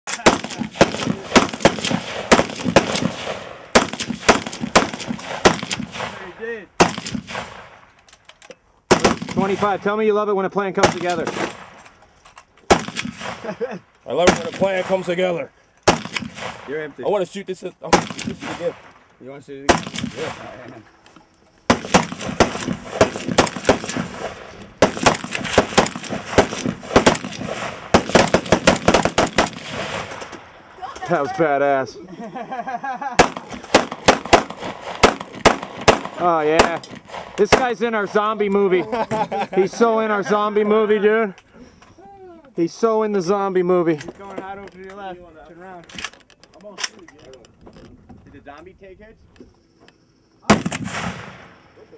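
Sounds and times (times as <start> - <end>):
rifle shots: 0.1 - 7.9, 8.9 - 10.0, 10.8 - 12.0, 12.6 - 17.2, 17.8 - 19.0, 19.6 - 20.7, 21.7 - 30.6, 33.2 - 38.2, 50.4 - 51.7
person calling out: 42.0 - 42.6.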